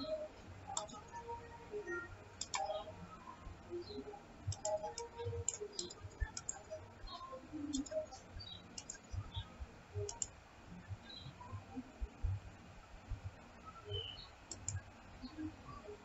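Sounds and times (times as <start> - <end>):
computer mouse clicking: 0.7 - 1.2, 2.4 - 2.9, 4.4 - 10.4, 13.9 - 14.9.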